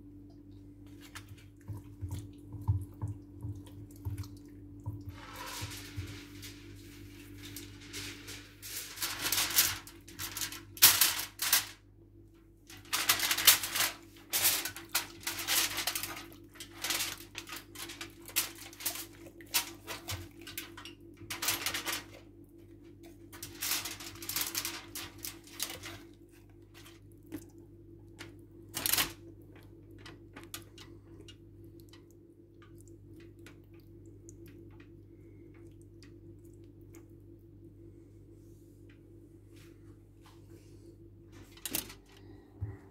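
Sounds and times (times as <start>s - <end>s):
steady low hum: 0.0s - 42.9s
household items clattering and scraping: 5.1s - 10.5s.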